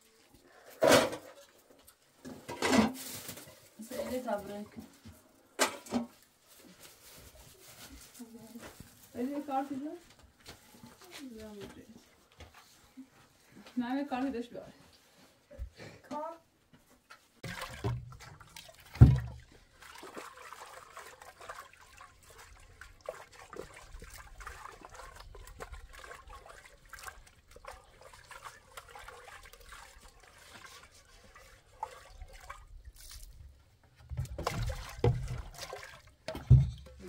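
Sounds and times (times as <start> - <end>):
water pouring into metal pot: 17.4 - 33.3
water swishing in pot: 17.4 - 37.0
thump: 19.0 - 19.4.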